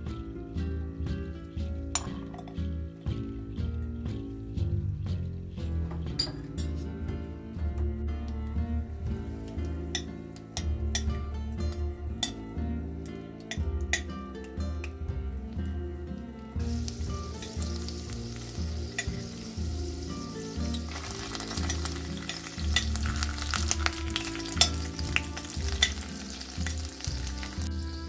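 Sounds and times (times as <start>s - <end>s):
garlic sizzling in oil: 16.6s - 28.0s.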